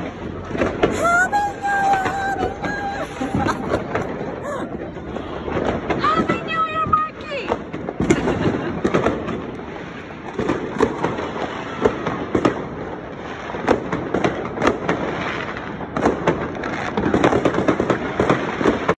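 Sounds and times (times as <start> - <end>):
distant fireworks bursts: 0.0 - 19.0
fireworks bangs and cracks: 0.0 - 19.0.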